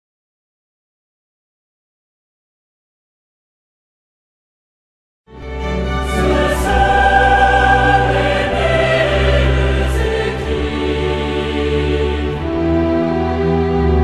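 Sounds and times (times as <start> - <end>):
choral singing: 5.4 - 14.0.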